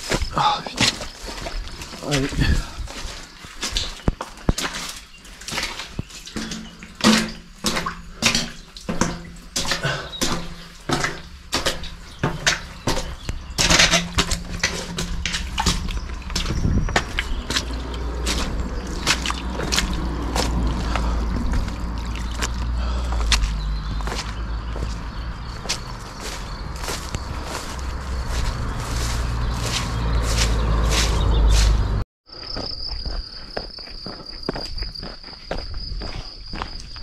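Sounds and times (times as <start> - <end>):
footsteps on rough trail: 0.0 - 37.0
wind rumble on microphone: 1.5 - 4.0, 13.2 - 32.0.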